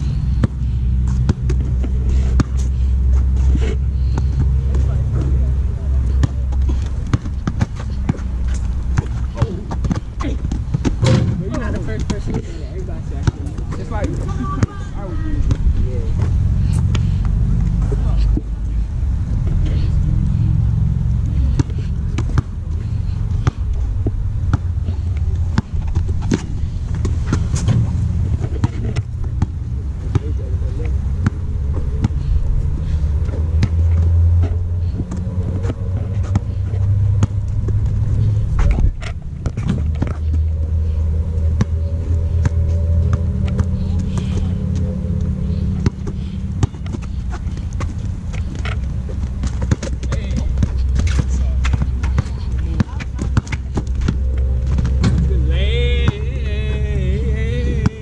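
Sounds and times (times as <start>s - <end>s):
steady low rumble: 0.0s - 58.0s
basketball bouncing on court: 0.4s - 2.7s, 6.1s - 12.4s, 21.4s - 30.5s, 31.2s - 32.2s, 33.4s - 38.0s, 41.5s - 55.3s.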